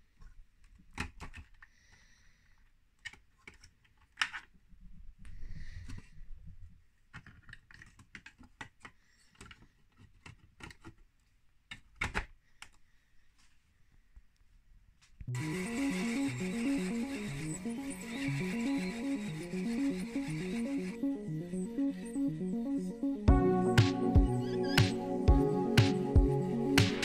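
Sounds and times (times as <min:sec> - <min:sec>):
hard plastic parts clicking: 0:00.6 - 0:01.7, 0:03.0 - 0:04.5, 0:07.0 - 0:12.8.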